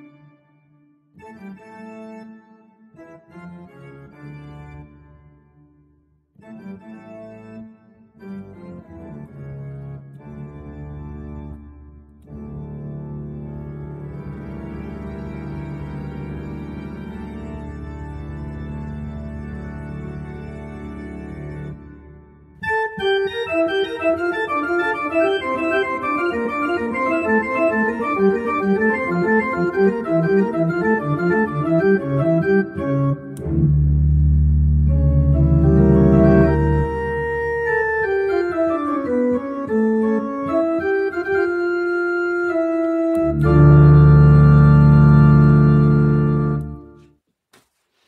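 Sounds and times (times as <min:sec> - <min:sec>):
organ music: 0:00.0 - 0:00.4, 0:01.2 - 0:05.6, 0:06.4 - 0:47.0.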